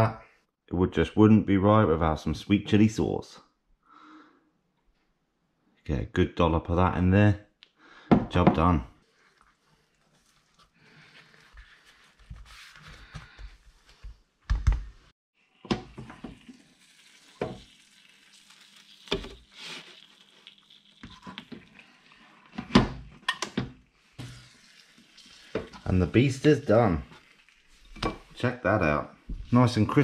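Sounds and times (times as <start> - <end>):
wrap sizzling on grill: 9.0 - 12.4, 15.4 - 28.6
tortilla wrap rustling: 9.0 - 14.2, 16.4 - 22.5, 23.8 - 28.4.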